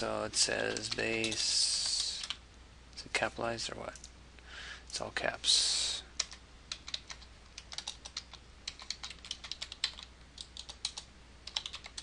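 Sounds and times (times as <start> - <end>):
typing on a computer keyboard: 6.2 - 12.0.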